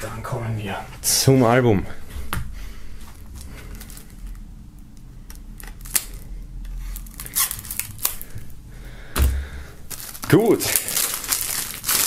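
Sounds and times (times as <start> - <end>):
knife scratching plastic wrap: 5.6 - 8.3, 10.0 - 12.0.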